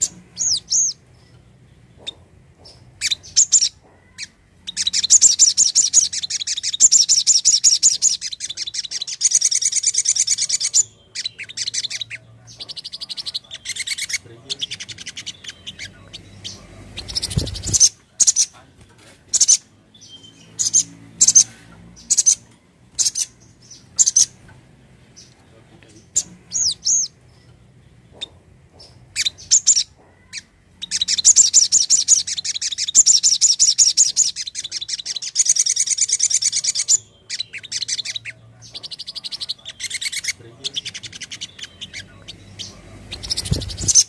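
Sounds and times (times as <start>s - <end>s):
sunbird calling: 2.0s - 18.6s.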